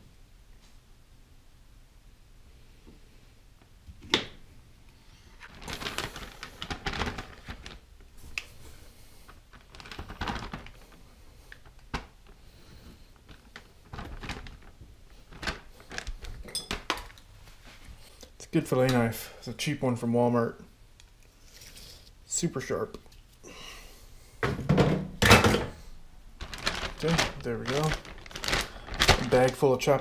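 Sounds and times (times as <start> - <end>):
plastic bag crinkling: 5.3 - 17.2, 25.8 - 30.0.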